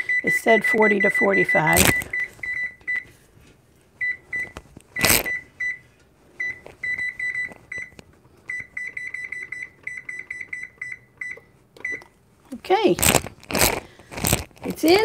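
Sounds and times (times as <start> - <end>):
high-pitched control panel beeps: 0.0 - 3.1, 6.4 - 12.1.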